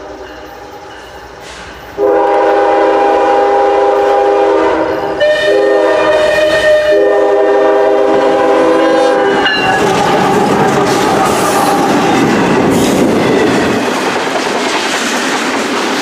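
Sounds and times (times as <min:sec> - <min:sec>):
locomotive air horn: 0:02.0 - 0:11.7
locomotive engine and wheels: 0:07.7 - 0:16.0.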